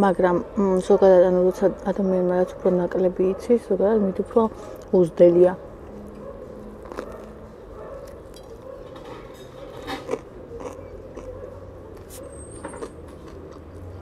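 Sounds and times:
person chewing bread: 5.7s - 14.0s.

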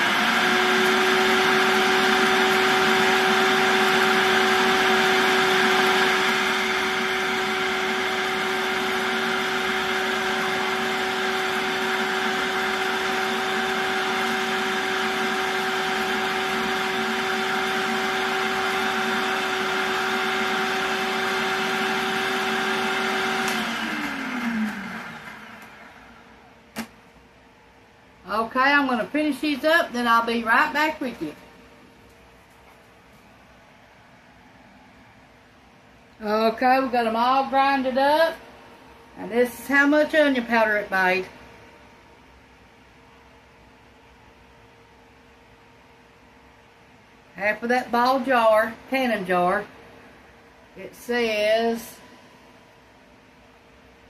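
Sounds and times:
motor winding down: 0.0s - 26.2s
food processor motor whining: 0.0s - 26.9s.

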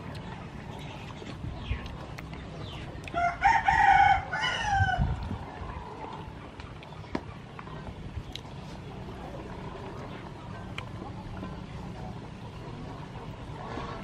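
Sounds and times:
rooster crowing: 3.2s - 5.2s.

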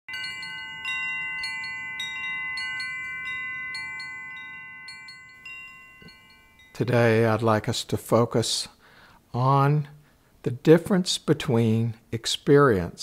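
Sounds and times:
chimes ringing: 0.1s - 7.5s.

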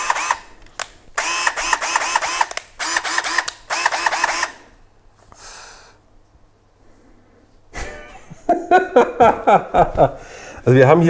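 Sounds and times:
cordless drill motor bursts: 0.0s - 0.5s, 1.2s - 4.7s.

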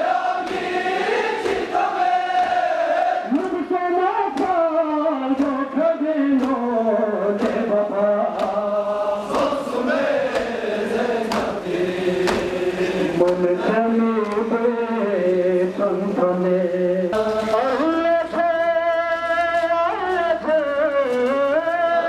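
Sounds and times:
men chanting mournfully: 0.0s - 22.0s
chest-beating slaps: 0.4s - 0.7s, 8.3s - 9.6s, 10.3s - 10.6s, 11.2s - 11.6s, 12.2s - 12.6s.

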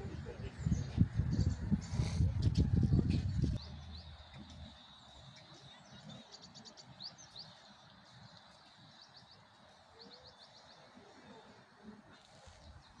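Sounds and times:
small birds chirping: 0.2s - 13.0s
faint outdoor hiss: 2.0s - 13.0s.

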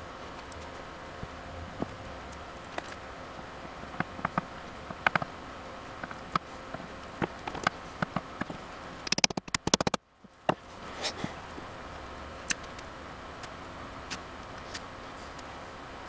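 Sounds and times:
sharp taps: 9.1s - 10.6s.

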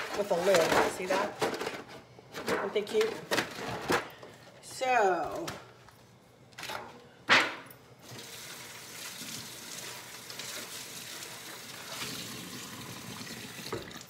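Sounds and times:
foil pan being rinsed: 8.0s - 14.0s
faucet running into metal sink: 8.1s - 14.0s.

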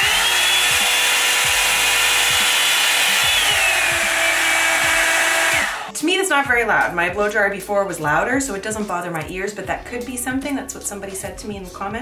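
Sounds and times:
hair dryer fan whine: 0.0s - 5.9s.

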